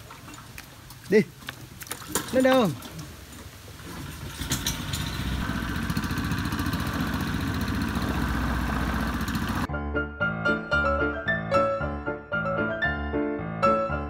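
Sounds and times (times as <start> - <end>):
small engine running: 4.0 - 9.7.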